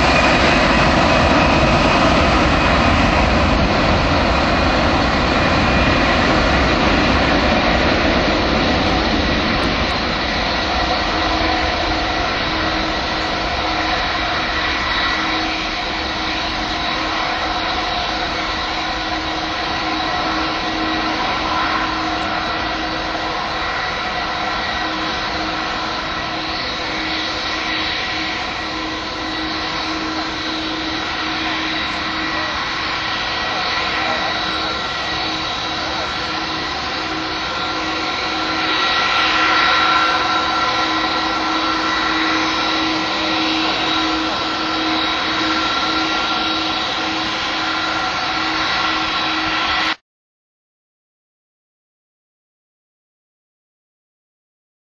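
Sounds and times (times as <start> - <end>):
jet engines roaring at takeoff: 0.0 - 50.0.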